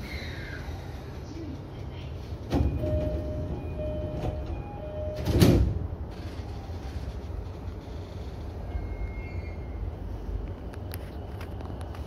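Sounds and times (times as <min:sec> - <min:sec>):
low hum of train: 0:00.0 - 0:12.0
sliding doors shutting with thud: 0:02.4 - 0:05.8.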